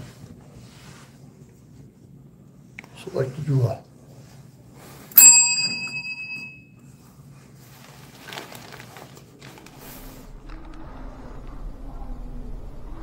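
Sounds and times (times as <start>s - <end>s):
bell-like chime: 5.2s - 6.7s.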